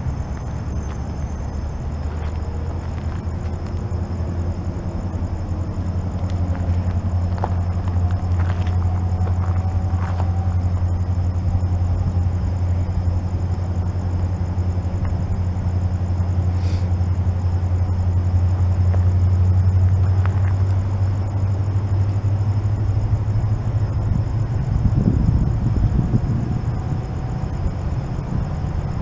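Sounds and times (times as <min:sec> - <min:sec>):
diesel locomotive rumble: 0:00.0 - 0:29.0.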